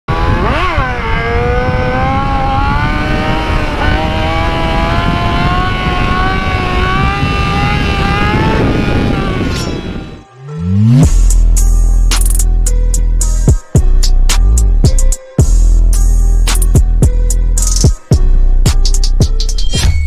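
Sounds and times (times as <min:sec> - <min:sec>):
wind rush on microphone: 0:00.1 - 0:10.2
motorcycle engine cruising: 0:00.1 - 0:11.7.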